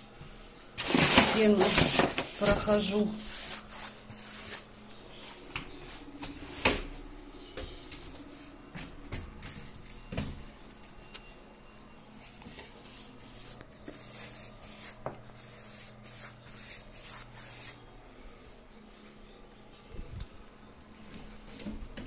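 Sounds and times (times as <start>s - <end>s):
sponge swishing on wall: 1.5s - 4.7s, 12.2s - 17.8s.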